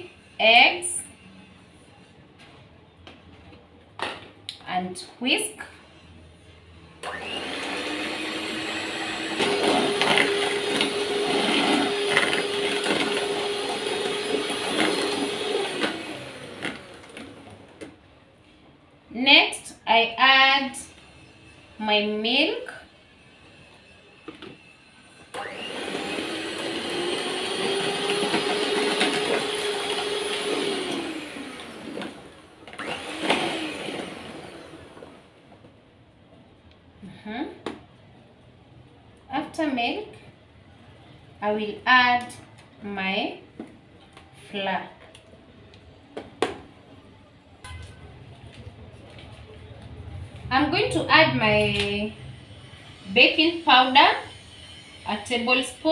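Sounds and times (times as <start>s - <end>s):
electric hand mixer whirring: 7.0s - 17.8s, 25.3s - 35.4s.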